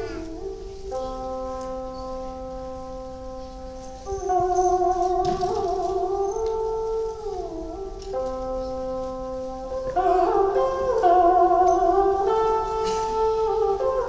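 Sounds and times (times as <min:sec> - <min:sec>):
sliding wavering melody: 0:00.0 - 0:14.0
traditional instrumental music: 0:00.0 - 0:14.0.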